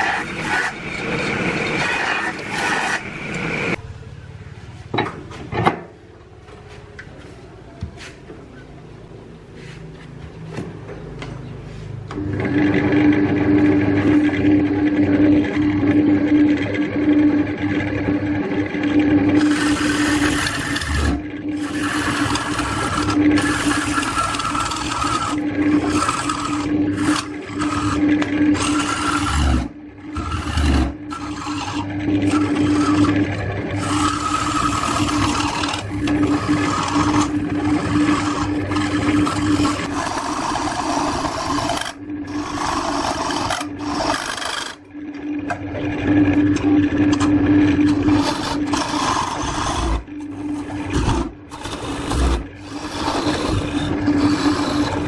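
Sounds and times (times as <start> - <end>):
steel tool scraping wood: 0.0 - 3.8, 19.4 - 44.8, 47.1 - 55.0
wood lathe motor hum: 0.0 - 4.0, 12.1 - 55.0.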